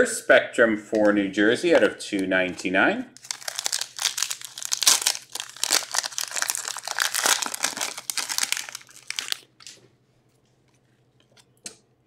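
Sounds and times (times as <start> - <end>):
packaging crinkling: 3.2 - 9.8.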